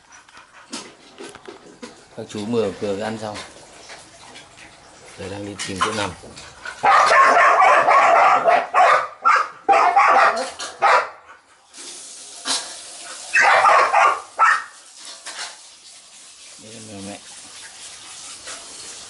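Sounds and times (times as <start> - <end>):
dog barking: 6.8 - 11.2, 13.3 - 14.8.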